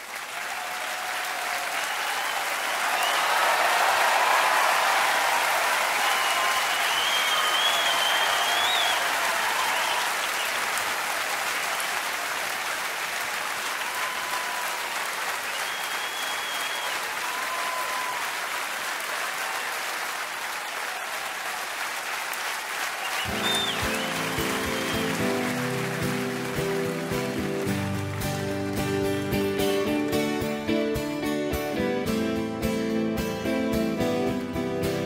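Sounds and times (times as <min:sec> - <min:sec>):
audience applauding: 0:00.0 - 0:30.7
crowd whistling: 0:00.5 - 0:11.8, 0:13.7 - 0:18.6, 0:22.4 - 0:28.2
band playing: 0:23.3 - 0:35.0.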